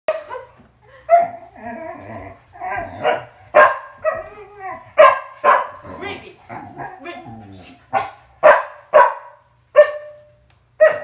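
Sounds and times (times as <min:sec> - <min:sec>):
dog barking: 0:03.0 - 0:04.2, 0:05.0 - 0:05.8, 0:07.9 - 0:11.0.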